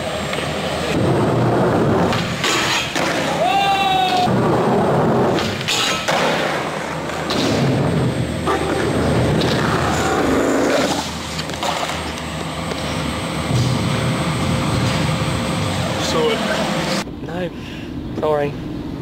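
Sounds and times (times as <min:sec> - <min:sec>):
skateboard wheels rolling: 0:00.0 - 0:13.0.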